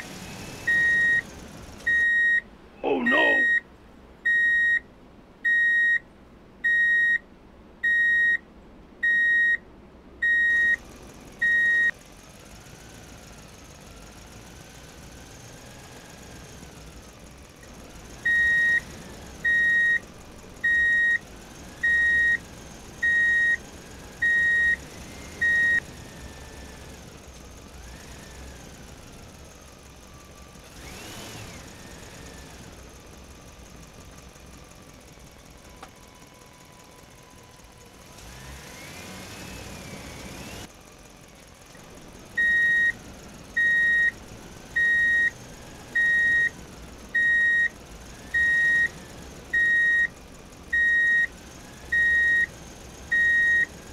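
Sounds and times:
reversing alarm beeps: 0.7 - 1.2, 1.9 - 2.4, 4.3 - 4.8, 5.5 - 6.0, 6.7 - 7.2, 7.8 - 8.4, 9.0 - 9.6, 10.2 - 10.8, 11.4 - 11.9, 18.3 - 18.8, 19.4 - 20.0, 20.6 - 21.2, 21.8 - 22.4, 23.0 - 23.6, 24.2 - 24.8, 25.4 - 25.8, 42.4 - 43.0, 43.6 - 44.2, 44.8 - 45.4, 46.0 - 46.5, 47.2 - 47.7, 48.4 - 48.9, 49.6 - 50.1, 50.8 - 51.3, 51.9 - 52.5, 53.1 - 53.7.

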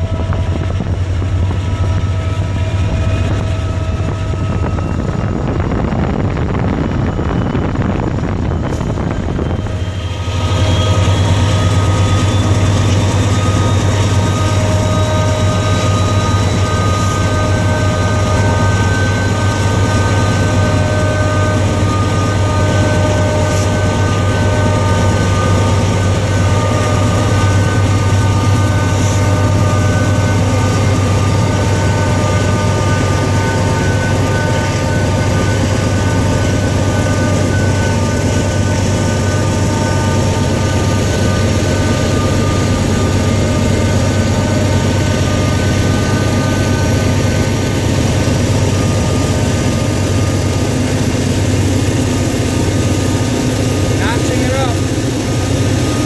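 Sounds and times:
road and wind noise: 0.0 - 10.3
locomotive rumble with whining tones: 0.0 - 56.0.

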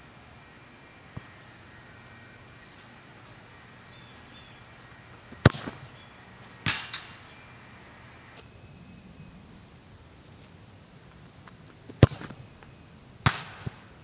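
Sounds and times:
ball kicked hard: 5.4 - 5.9, 6.6 - 7.0, 11.9 - 12.4, 13.2 - 13.8
ball ringing off metal goal: 6.6 - 7.3.

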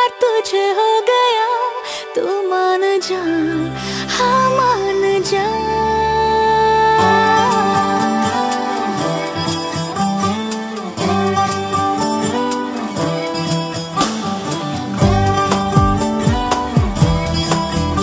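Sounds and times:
held melody notes: 3.3 - 18.0
plucked string notes: 3.3 - 18.0
low drums: 14.0 - 18.0.

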